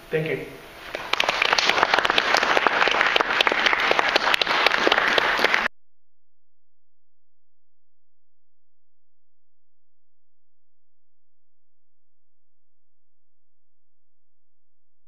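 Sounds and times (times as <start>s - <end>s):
audience applauding: 0.9s - 5.7s.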